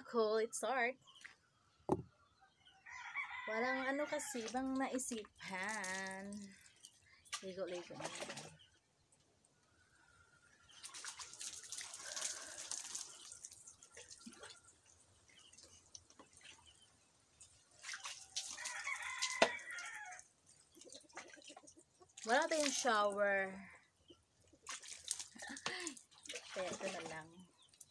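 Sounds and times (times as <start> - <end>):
rooster crowing: 2.8 - 4.3, 18.6 - 20.2
water dripping: 4.3 - 9.8, 10.6 - 27.9
water poured over head splashing: 5.4 - 8.5, 10.7 - 14.9, 17.6 - 20.1, 24.6 - 27.2.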